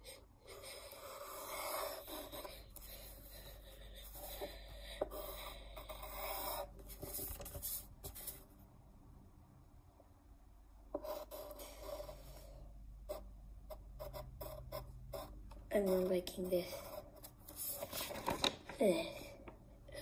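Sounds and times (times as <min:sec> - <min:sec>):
pencil scratching on paper: 0:00.0 - 0:08.4, 0:11.0 - 0:12.5, 0:13.1 - 0:17.9.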